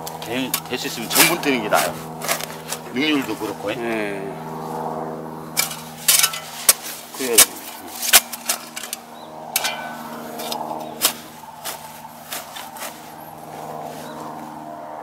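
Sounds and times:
low mechanical hum: 0.0s - 15.0s
spade chopping into soil: 5.6s - 9.0s, 9.6s - 12.8s.

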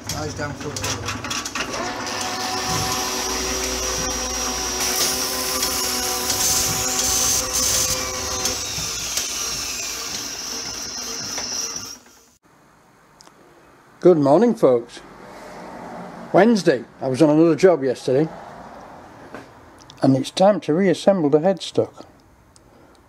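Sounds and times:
machine-like whirring with hiss: 1.6s - 12.4s.

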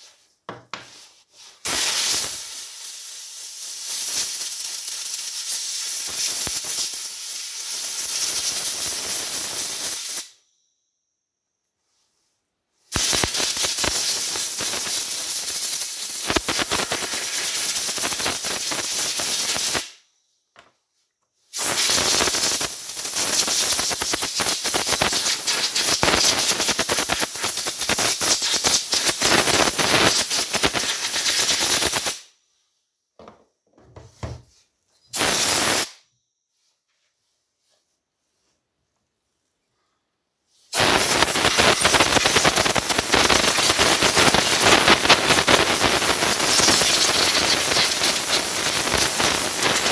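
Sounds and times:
pressurised spray hissing: 1.6s - 10.3s, 12.9s - 19.9s, 21.6s - 32.2s, 35.2s - 36.0s, 40.7s - 49.9s.

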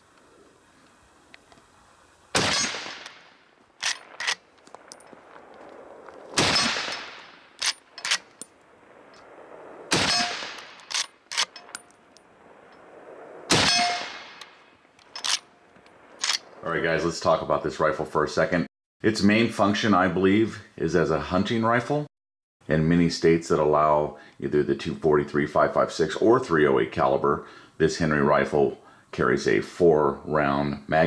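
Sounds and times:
rifle shots: 2.3s - 16.6s
rifle lever clicks: 3.8s - 5.0s, 7.6s - 8.5s, 10.2s - 11.9s, 15.0s - 15.4s, 16.2s - 16.5s.

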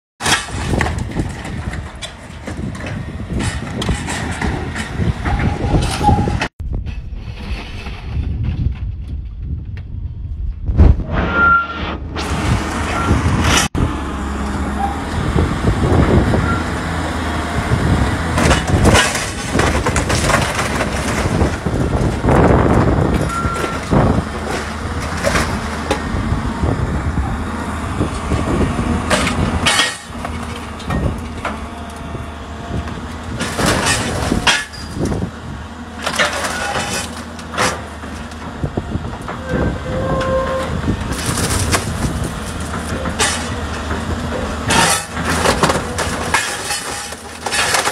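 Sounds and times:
metal crunching and banging: 0.2s - 9.7s, 12.2s - 47.9s
metallic squeals: 5.2s - 6.5s, 11.1s - 12.1s, 33.8s - 35.0s, 39.3s - 40.8s.

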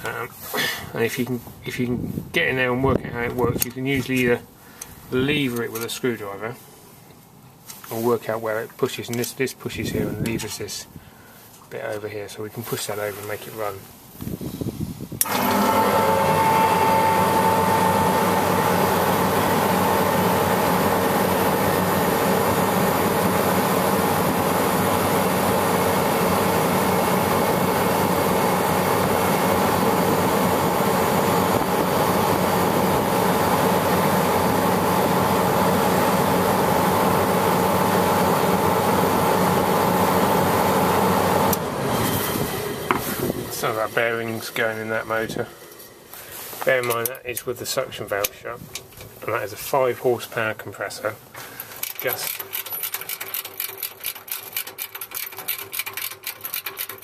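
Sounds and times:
refrigeration compressor humming: 15.2s - 46.5s.

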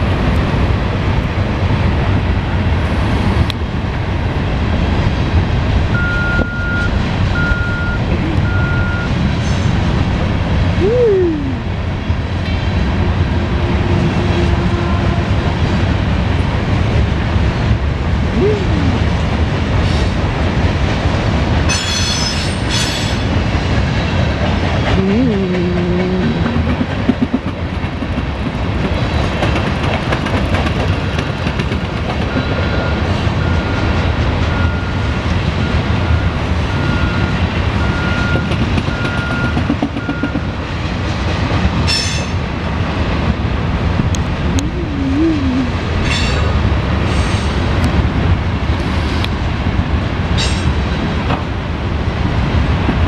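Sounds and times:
freight train cars rolling: 0.0s - 53.0s
wheels clattering over rails: 25.6s - 32.9s.

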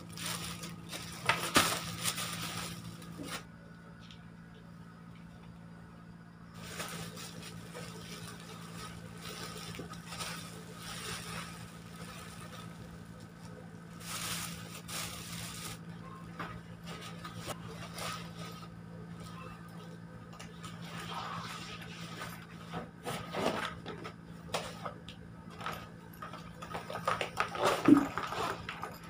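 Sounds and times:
plastic packaging crinkling: 0.0s - 3.5s, 6.6s - 16.0s, 25.5s - 29.0s
steady low hum: 0.0s - 29.0s.

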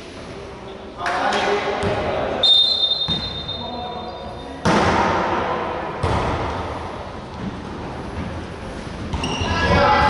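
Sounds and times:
referee's whistle: 2.4s - 3.8s.

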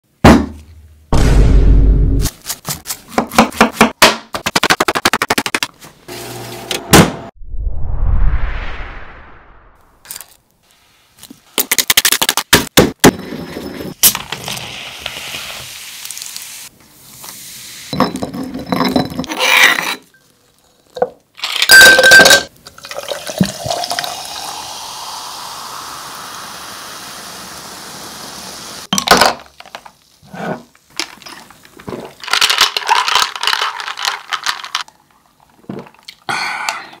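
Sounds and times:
lemonade pouring and fizzing: 22.6s - 28.6s, 31.0s - 36.3s.

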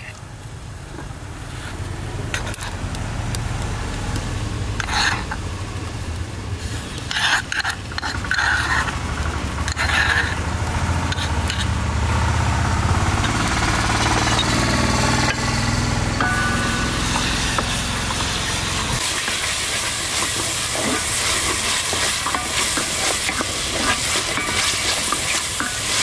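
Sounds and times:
metal spoon scraping clay bowl: 2.3s - 2.8s, 4.8s - 5.4s, 6.9s - 9.0s, 9.6s - 11.8s, 13.2s - 14.6s, 16.2s - 26.0s.

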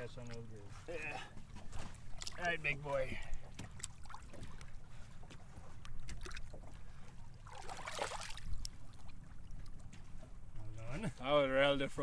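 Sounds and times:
boat engine rumble: 0.0s - 12.0s
water splash: 1.9s - 2.6s, 3.5s - 4.7s, 7.4s - 9.2s.

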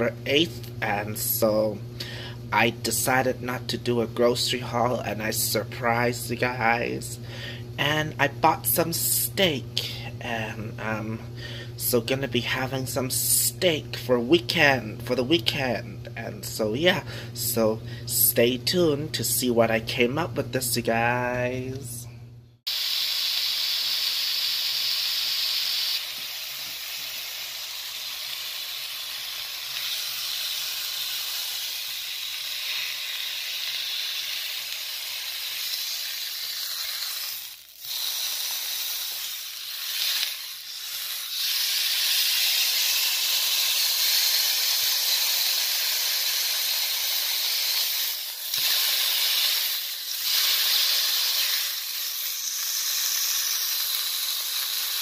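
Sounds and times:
steak sizzling in a frying pan: 22.7s - 55.0s.

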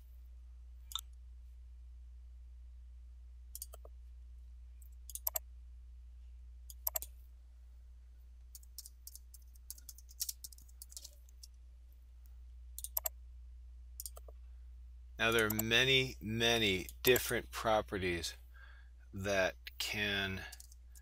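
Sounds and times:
steady low hum: 0.0s - 21.0s
computer mouse clicks: 3.5s - 3.9s, 4.8s - 5.4s, 6.7s - 7.1s, 8.5s - 11.5s, 12.8s - 13.1s, 14.0s - 14.4s, 15.4s - 15.7s
keyboard typing: 3.6s - 3.9s, 5.1s - 5.4s, 6.7s - 7.1s, 8.5s - 11.5s, 12.8s - 13.1s, 14.0s - 14.4s, 15.3s - 15.7s.

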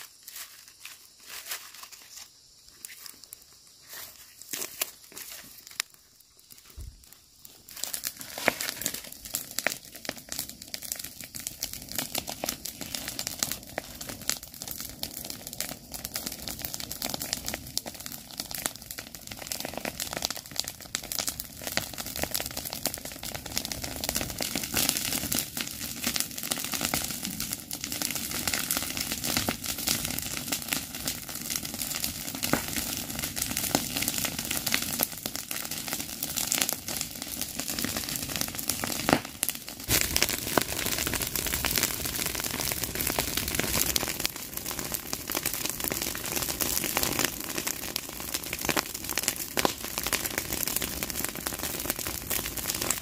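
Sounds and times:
dry stalks rustling: 0.0s - 9.0s
fire crackling and popping: 0.0s - 53.0s.

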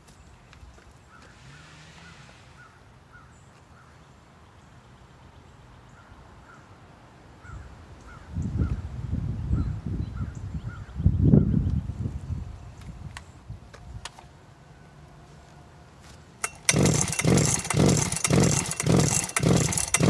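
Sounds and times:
chainsaw pull-start bursts: 16.4s - 20.0s.

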